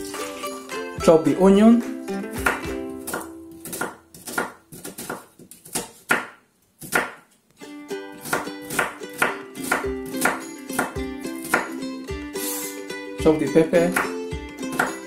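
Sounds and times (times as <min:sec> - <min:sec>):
background music: 0:00.0 - 0:04.7, 0:07.6 - 0:15.0
knife chopping on cutting board: 0:02.4 - 0:07.3, 0:08.2 - 0:11.8, 0:14.7 - 0:15.0.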